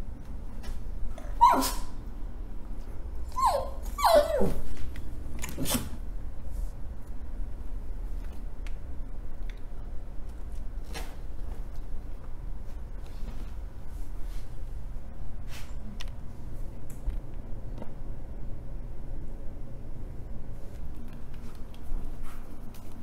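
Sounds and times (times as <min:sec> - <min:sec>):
dog whining barks: 0:01.2 - 0:02.0, 0:03.3 - 0:04.6.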